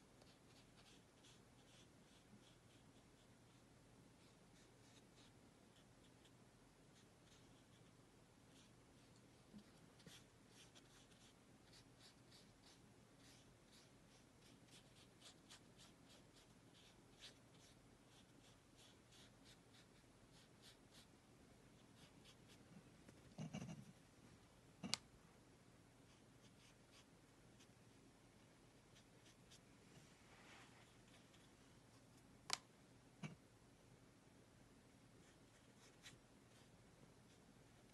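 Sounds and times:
paintbrush dabbing on paper: 0.2 - 6.3, 6.9 - 21.1, 21.8 - 22.6, 28.9 - 29.6.

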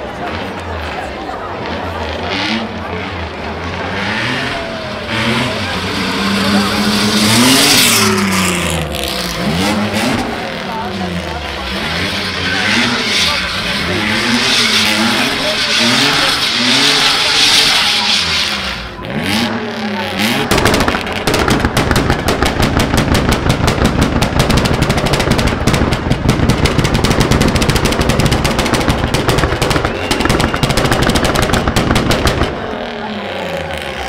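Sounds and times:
car engine revving: 1.4 - 34.0
rapid rattle of sharp pops: 20.5 - 32.6.

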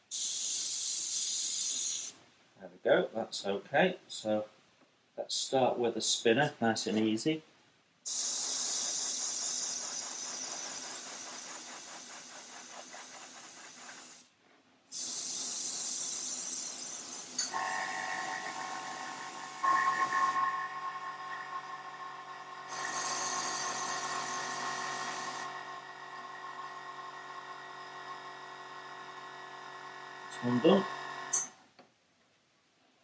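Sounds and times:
airbrush spraying hiss: 0.0 - 2.2, 8.1 - 14.3, 14.9 - 21.6, 22.7 - 25.5
steady whining hum: 17.4 - 31.5.

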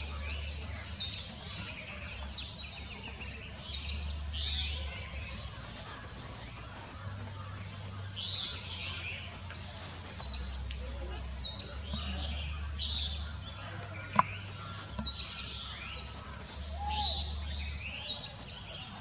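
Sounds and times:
birds chirping: 0.0 - 19.0
louder longer bird calls: 10.6 - 18.7.

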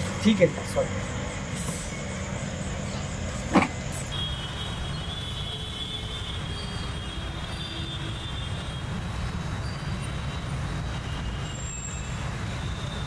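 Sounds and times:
rumble of passing traffic: 0.0 - 13.0.

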